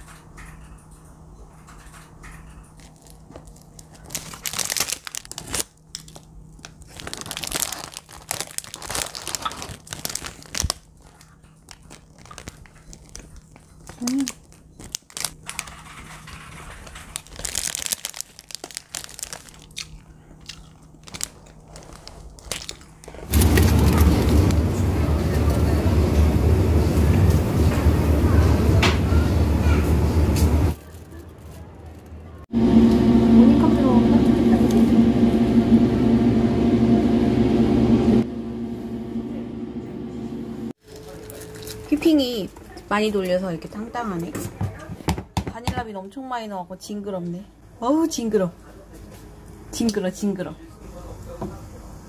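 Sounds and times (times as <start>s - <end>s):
refrigerated display case hum: 0.0s - 52.0s
plastic bag crinkling: 2.7s - 24.5s, 30.7s - 32.4s, 40.8s - 42.8s.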